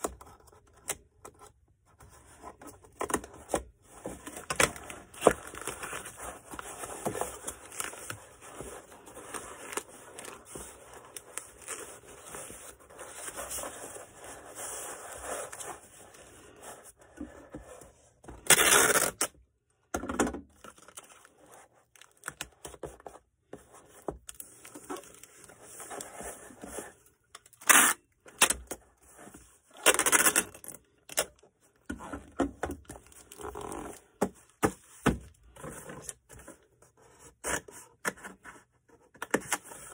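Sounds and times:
packing material rustling: 4.0s - 16.9s.

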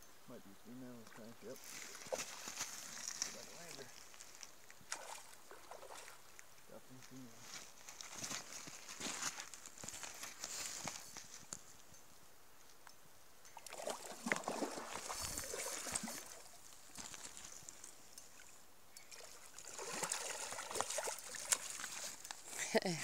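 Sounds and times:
fish splashing in shallow water: 4.8s - 6.4s, 13.6s - 22.6s.

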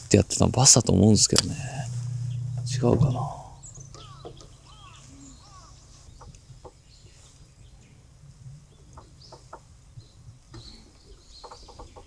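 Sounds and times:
low steady hum: 0.0s - 6.6s
faint bird chirps: 1.9s - 12.0s.

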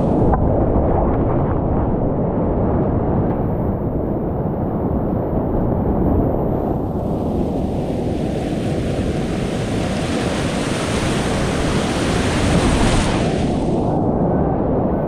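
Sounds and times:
water splashing over boat: 7.2s - 13.8s
whitewater rapids rushing: 7.6s - 13.8s.

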